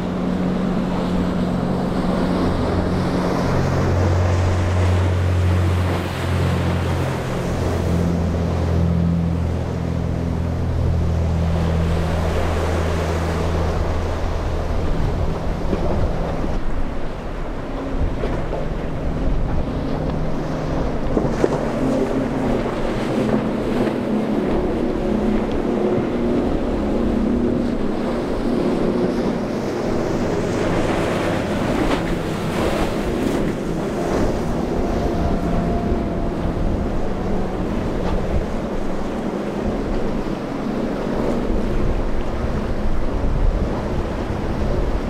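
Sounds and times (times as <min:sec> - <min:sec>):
outboard engines humming: 0:00.0 - 0:45.0
waves splashing and spray: 0:00.0 - 0:45.0
wind buffeting microphone: 0:00.0 - 0:45.0.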